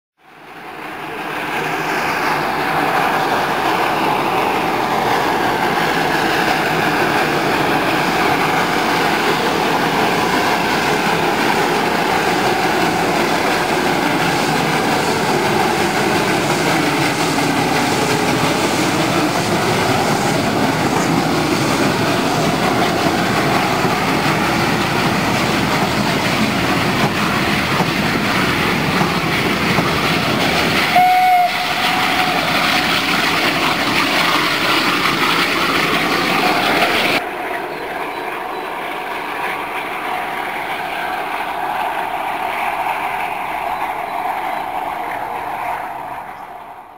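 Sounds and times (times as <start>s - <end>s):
steam train rumbling on rails: 0.3s - 46.9s
train whistle blast: 30.9s - 32.6s.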